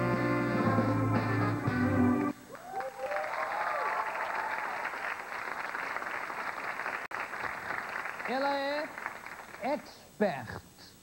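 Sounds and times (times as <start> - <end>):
live band playing: 0.0 - 2.4
cheering shouts: 2.5 - 5.0
audience applause: 2.5 - 9.8.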